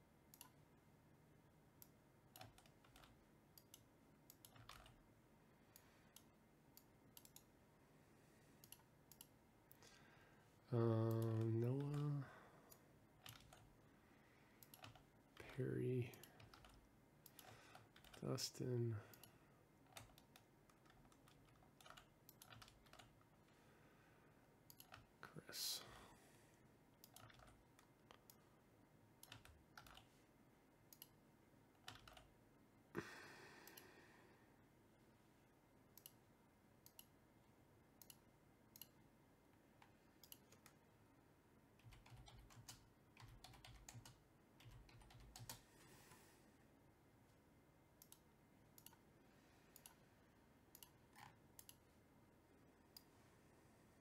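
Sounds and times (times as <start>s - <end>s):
keyboard typing: 1.8s - 5.0s, 10.9s - 13.8s, 14.6s - 18.3s, 19.1s - 23.3s, 24.7s - 25.1s, 27.0s - 28.5s, 29.2s - 30.1s, 31.8s - 32.3s, 41.8s - 45.6s.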